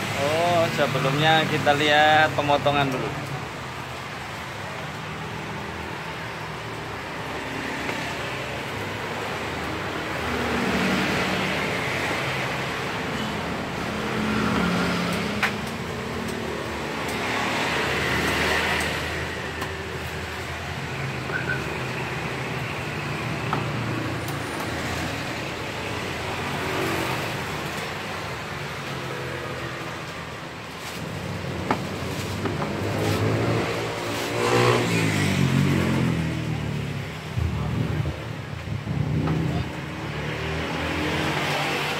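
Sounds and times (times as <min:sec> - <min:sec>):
road traffic: 0:00.0 - 0:41.9.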